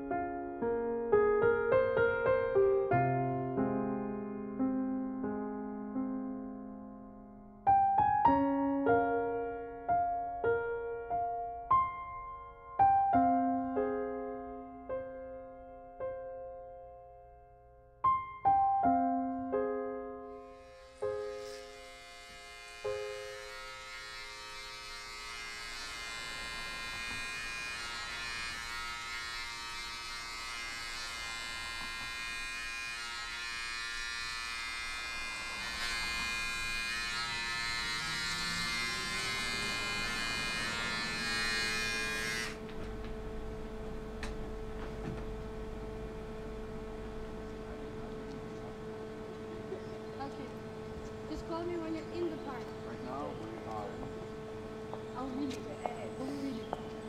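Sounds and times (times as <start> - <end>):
soft piano notes: 0.0 - 23.8, 42.6 - 57.0
electric shaver buzzing: 20.3 - 43.0, 45.2 - 57.0
low hum: 34.8 - 57.0.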